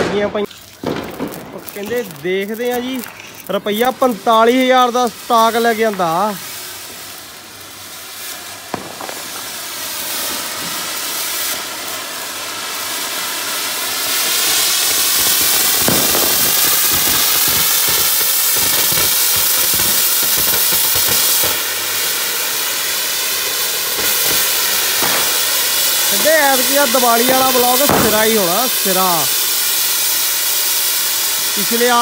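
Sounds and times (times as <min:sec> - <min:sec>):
firework crackling: 0:00.0 - 0:32.0
firework hissing: 0:00.0 - 0:32.0.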